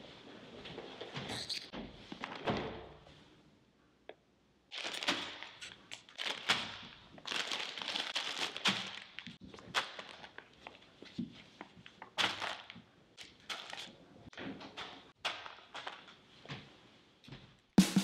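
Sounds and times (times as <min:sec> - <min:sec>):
plastic bags crinkling: 0:04.7 - 0:10.8.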